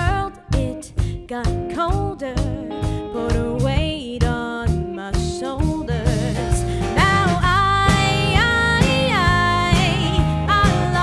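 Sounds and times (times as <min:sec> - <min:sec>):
woman singing: 0:00.0 - 0:11.0
low bass line: 0:05.7 - 0:11.0.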